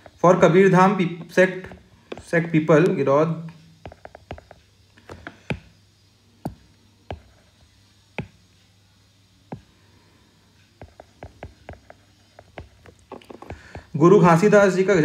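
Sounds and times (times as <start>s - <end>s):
stylus tapping on tablet screen: 1.2s - 3.0s, 3.8s - 5.8s, 6.4s - 8.5s, 9.5s - 9.8s, 10.7s - 14.0s.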